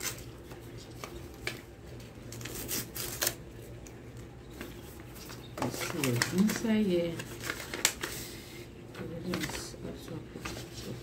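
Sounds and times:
paper rustling and crinkling: 0:00.0 - 0:03.4, 0:04.5 - 0:11.0.

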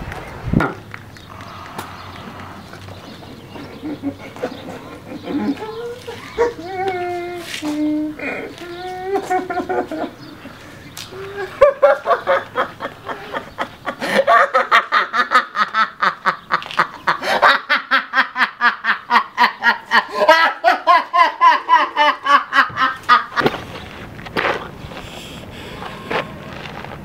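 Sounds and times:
people laughing: 0:02.3 - 0:07.2, 0:08.2 - 0:23.6.

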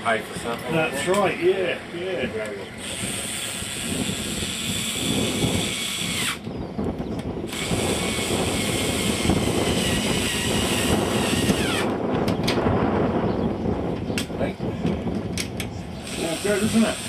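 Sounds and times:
electric screwdriver running: 0:02.8 - 0:06.5, 0:07.5 - 0:11.9, 0:16.0 - 0:17.0.

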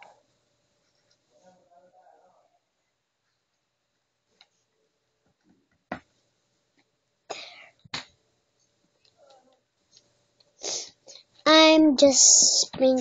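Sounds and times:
brief breathy burst: 0:10.6 - 0:11.0.

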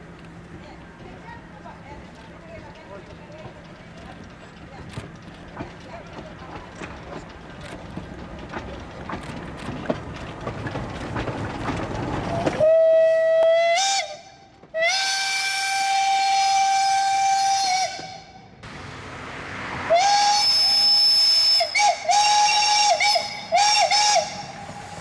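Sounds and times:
wheels clicking on rails: 0:00.0 - 0:18.2
steam locomotive rumbling past: 0:00.0 - 0:25.0
steam whistle blasts: 0:12.6 - 0:18.5, 0:19.8 - 0:25.0.

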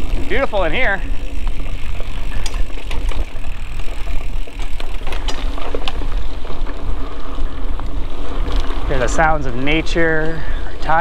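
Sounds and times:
small clicks and rattles: 0:00.0 - 0:06.9
bike tyres rolling on dirt: 0:00.0 - 0:11.0.

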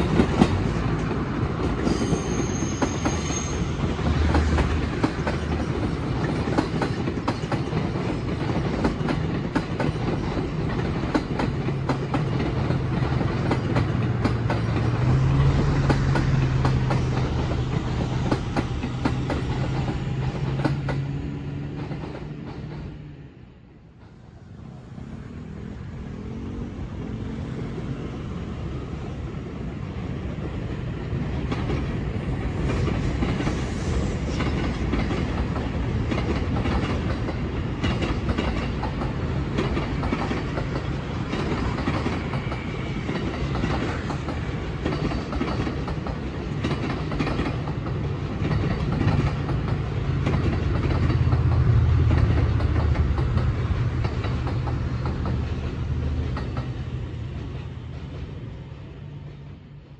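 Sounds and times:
wheels clacking over rail joints: 0:00.0 - 0:23.0, 0:34.3 - 0:58.4
electric train rumbling: 0:00.0 - 0:59.9.

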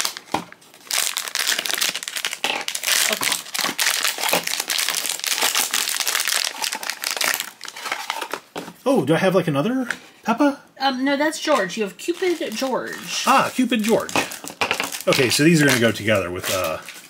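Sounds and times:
foil pouch crinkling: 0:00.0 - 0:08.5, 0:12.1 - 0:17.0.

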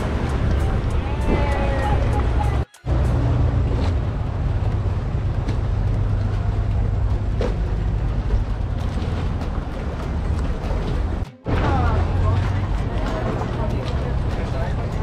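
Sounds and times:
motorboat engine idling: 0:02.0 - 0:11.3.

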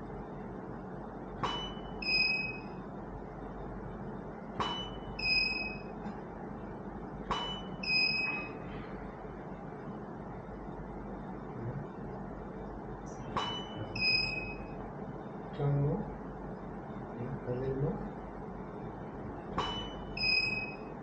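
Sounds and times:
high two-tone electronic beep: 0:01.4 - 0:02.8, 0:04.6 - 0:05.9, 0:07.3 - 0:08.6, 0:13.4 - 0:14.8, 0:19.6 - 0:20.9.

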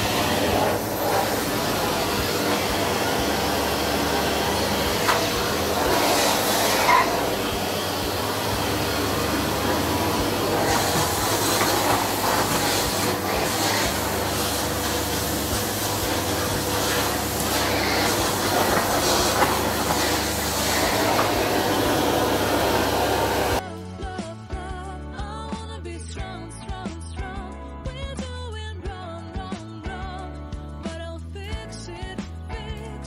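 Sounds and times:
vacuum cleaner running: 0:00.0 - 0:23.6.

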